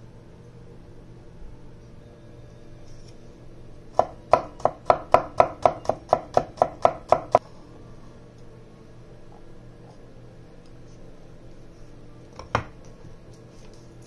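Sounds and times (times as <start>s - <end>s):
cleaver chopping on cutting board: 4.0s - 7.4s.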